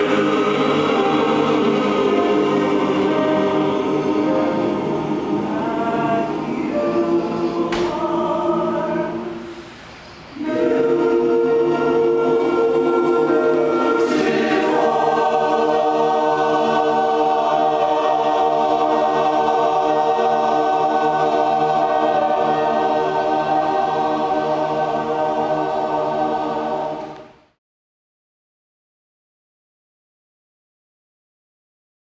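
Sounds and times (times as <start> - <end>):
men's chorus singing: 0.0 - 9.6, 10.4 - 27.2.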